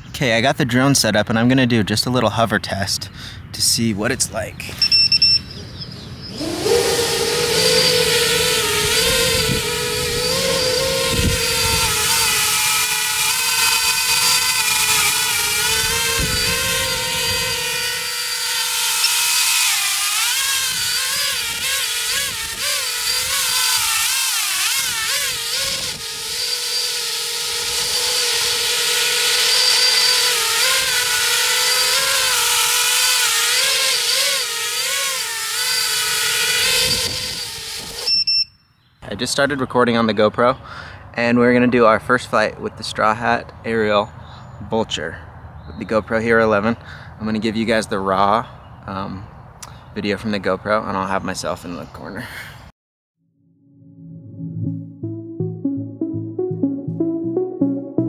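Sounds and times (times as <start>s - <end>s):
drone motors whining: 4.7s - 38.4s.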